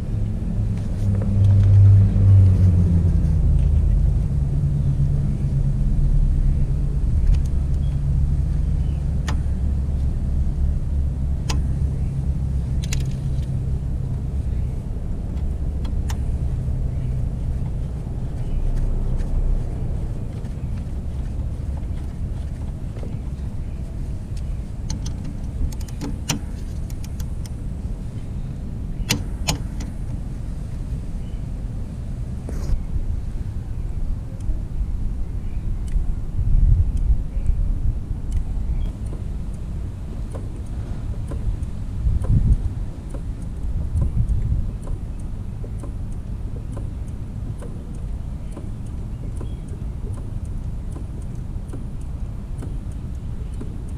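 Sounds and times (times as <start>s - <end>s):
low rumble: 0.0s - 53.9s
wrench clicks: 24.8s - 27.6s
faint regular ticks: 36.7s - 53.9s.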